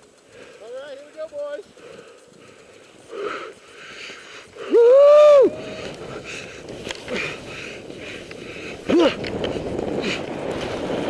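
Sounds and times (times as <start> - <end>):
skis hissing through powder snow: 0.0 - 11.0
skier whooping: 4.6 - 6.3, 8.8 - 9.4.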